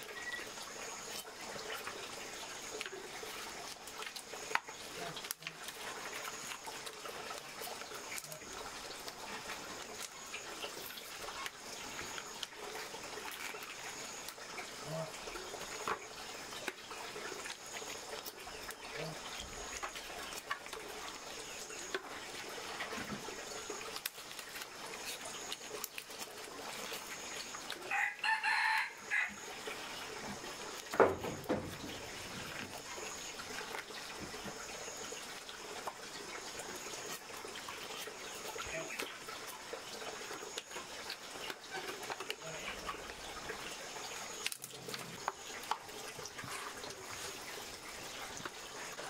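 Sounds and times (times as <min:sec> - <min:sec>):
faint high chirping: 0:00.0 - 0:01.2
bones knocking in plastic basin: 0:30.9 - 0:32.1.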